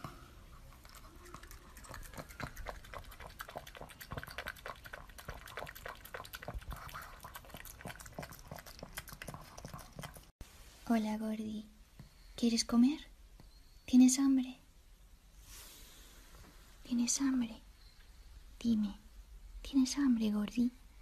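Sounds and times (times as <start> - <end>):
dog lapping food: 0.6 - 10.3.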